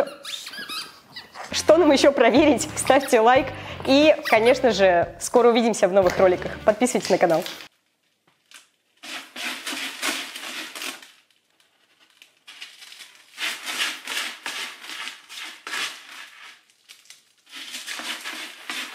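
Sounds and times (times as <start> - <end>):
cat digging in crystal litter: 9.0 - 11.2, 11.9 - 18.9.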